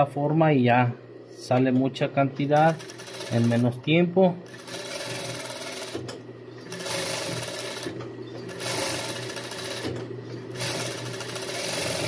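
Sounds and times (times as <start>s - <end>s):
sewing machine stitching: 2.6s - 3.8s, 4.5s - 12.0s.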